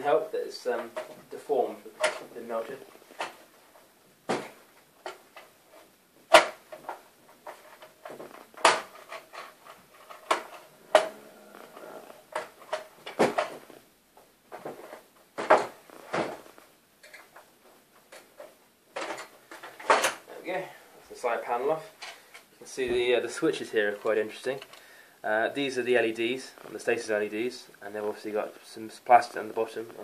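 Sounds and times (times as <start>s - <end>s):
sharp clicks and knocks: 6.3s - 11.2s.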